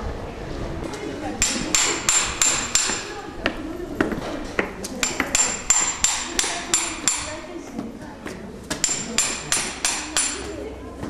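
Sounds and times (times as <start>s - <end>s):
hammer striking metal: 1.4s - 3.2s, 4.6s - 7.4s, 8.7s - 10.5s.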